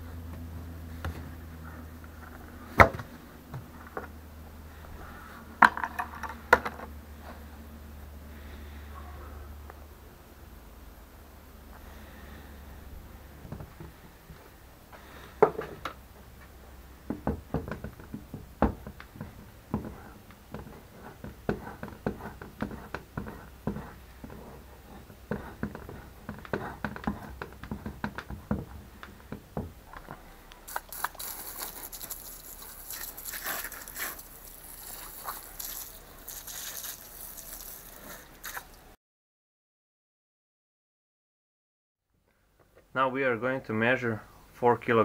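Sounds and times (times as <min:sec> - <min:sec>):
knife scraping wax: 0:30.7 - 0:38.7
hose spray rinsing: 0:30.7 - 0:38.8.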